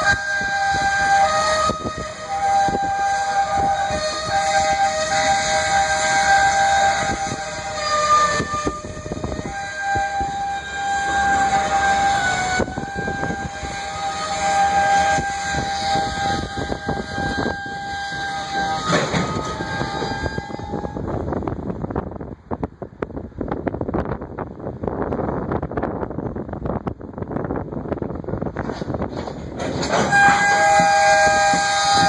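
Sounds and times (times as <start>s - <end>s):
wheels clattering over rail joints: 0.0s - 21.0s, 27.9s - 32.0s
train wheels squealing: 0.0s - 21.2s, 29.7s - 32.0s.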